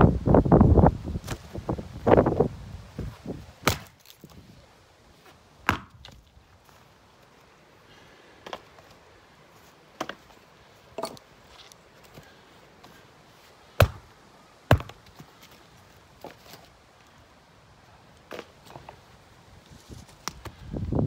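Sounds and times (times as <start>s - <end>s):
axe chopping wood boards: 3.6s - 4.2s, 5.6s - 6.2s, 13.8s - 14.1s, 14.7s - 15.0s.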